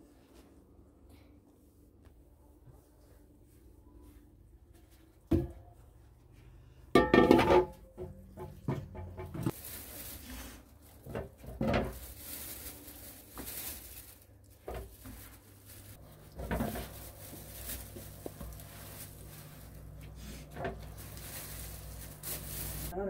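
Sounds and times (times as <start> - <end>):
low steady hum: 0.0 - 23.0
dough kneaded by hand: 7.9 - 23.0.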